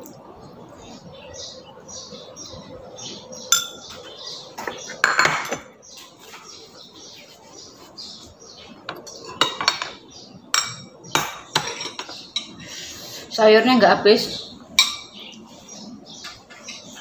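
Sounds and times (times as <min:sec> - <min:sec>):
spoon clinking on ceramic: 0:03.5 - 0:03.8, 0:14.8 - 0:15.2.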